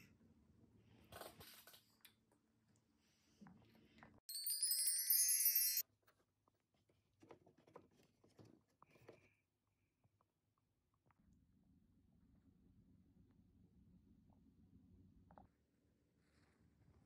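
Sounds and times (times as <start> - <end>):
sparkling chime sound effect: 4.3 - 5.8.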